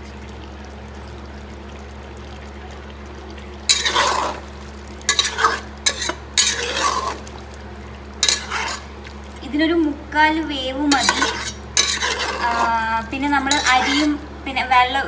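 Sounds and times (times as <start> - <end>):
steady low hum: 0.0 - 15.0
spatula scraping in a pot: 3.7 - 4.5, 5.1 - 7.3, 8.2 - 9.0, 10.9 - 14.2.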